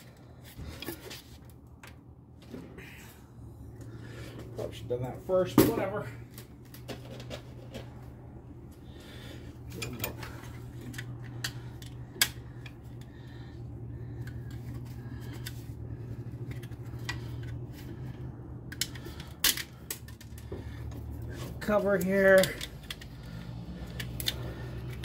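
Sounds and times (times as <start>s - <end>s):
steady low hum: 0.0s - 25.0s
metal tools clinking on metal: 9.7s - 11.8s, 21.4s - 25.0s.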